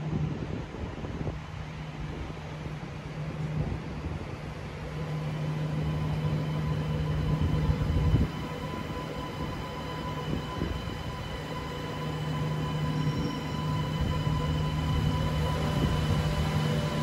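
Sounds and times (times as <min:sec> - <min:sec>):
train low rumble: 0:00.0 - 0:17.0
electric hum: 0:04.3 - 0:17.0
high whining tones: 0:04.5 - 0:17.0.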